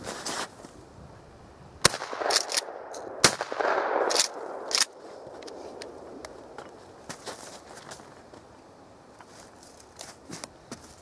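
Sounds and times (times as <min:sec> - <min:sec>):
shotgun shots: 0:01.8 - 0:04.9.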